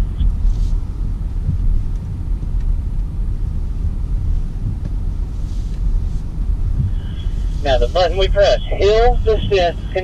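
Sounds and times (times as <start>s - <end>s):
car engine low rumble: 0.0s - 10.0s.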